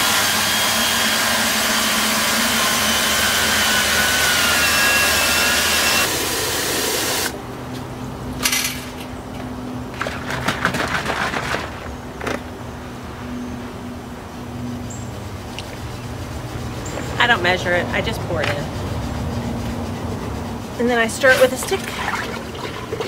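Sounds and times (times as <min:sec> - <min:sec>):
hose water pouring into bucket: 0:21.3 - 0:23.0.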